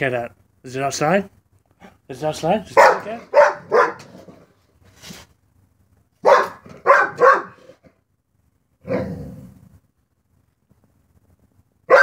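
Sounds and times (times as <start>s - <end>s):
dog barking: 2.7s - 4.4s, 6.2s - 7.8s.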